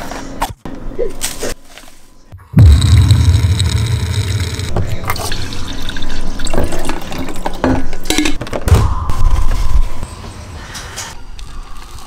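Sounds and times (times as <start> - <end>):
deep bass sound effect: 2.4 - 5.1.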